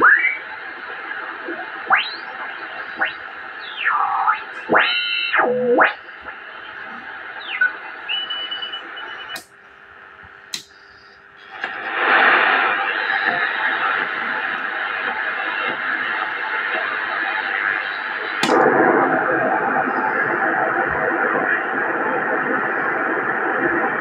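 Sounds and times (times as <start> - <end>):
radio static hiss: 0.0 - 24.0
receiver clicks: 5.8 - 12.0, 18.4 - 18.8
sliding whistling tones: 6.6 - 9.4.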